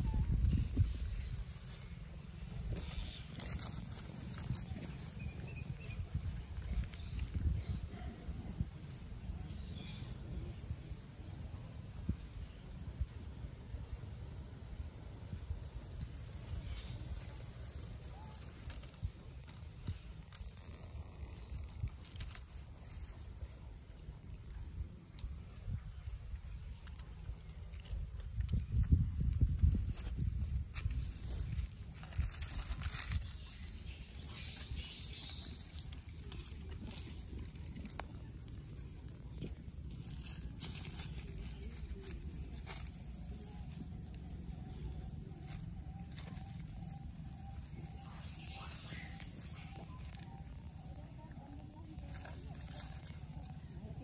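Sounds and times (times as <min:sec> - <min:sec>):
leaves rustling and stems snapping: 0:16.0 - 0:23.1, 0:29.9 - 0:47.0.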